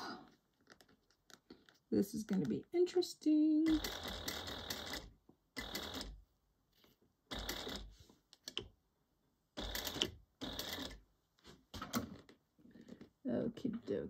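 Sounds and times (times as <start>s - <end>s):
sewing machine stitching: 3.6s - 6.2s, 7.3s - 7.9s.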